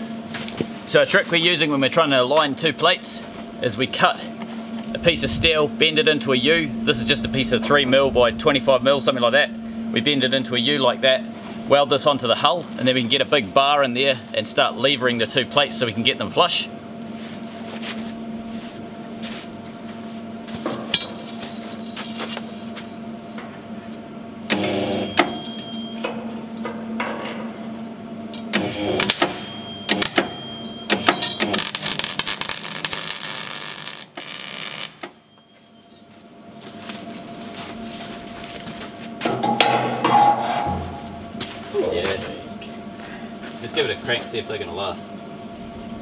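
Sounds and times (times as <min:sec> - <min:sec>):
steady hum: 0:00.0 - 0:46.0
welder crackling: 0:28.5 - 0:35.2.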